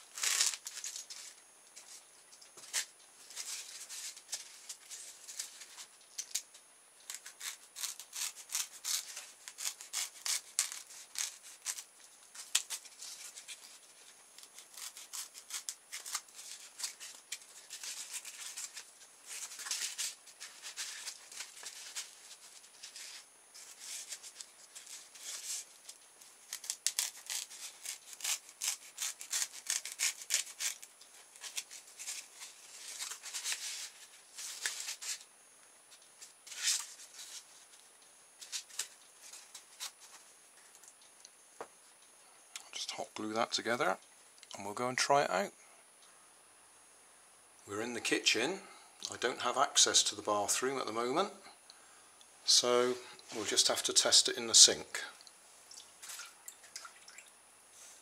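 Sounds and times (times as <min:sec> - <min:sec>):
knife scraping through foam: 0:07.2 - 0:11.9.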